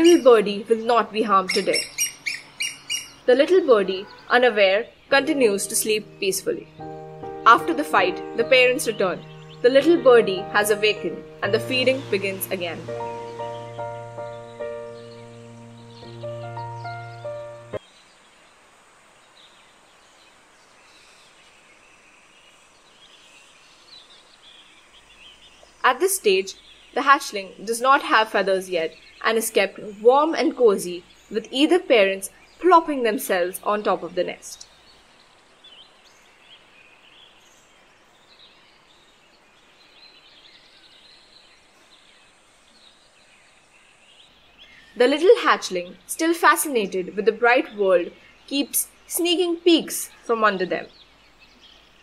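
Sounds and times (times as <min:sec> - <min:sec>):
faint bird chirps: 0:00.0 - 0:12.0
outdoor background hiss: 0:00.0 - 0:52.0.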